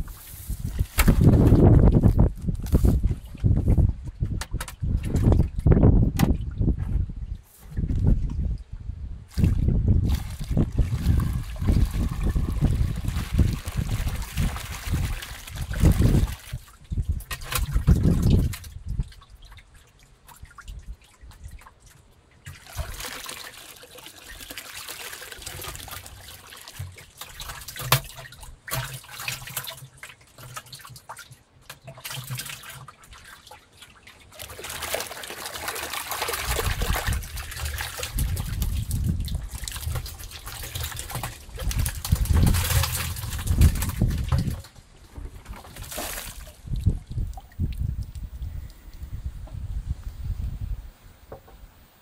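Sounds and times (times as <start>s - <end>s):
water trickling into a bucket: 9.3s - 49.6s.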